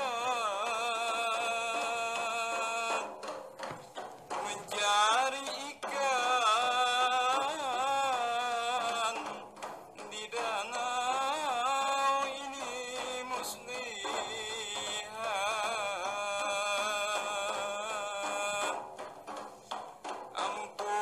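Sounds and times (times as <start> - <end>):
person chanting: 0.0 - 21.0.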